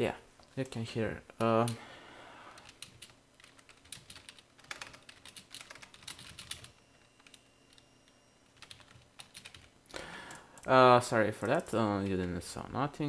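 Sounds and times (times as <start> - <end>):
computer keyboard typing: 2.5 - 12.4.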